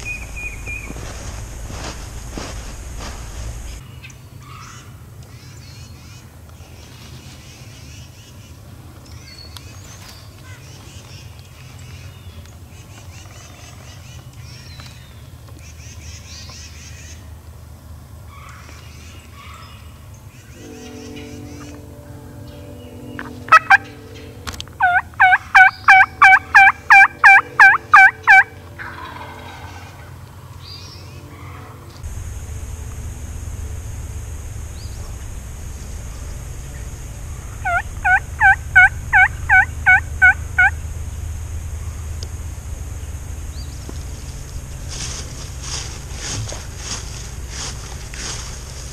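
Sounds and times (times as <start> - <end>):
low rumble: 0.0 - 3.8, 20.2 - 48.9
songbirds chirping: 0.0 - 48.9
wild turkey yelps: 23.5 - 23.9, 24.8 - 30.0, 37.6 - 40.8.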